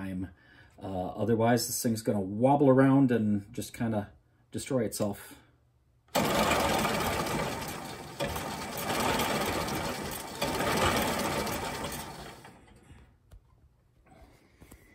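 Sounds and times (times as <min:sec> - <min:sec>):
electric motor mechanical rattle: 0:06.1 - 0:13.0.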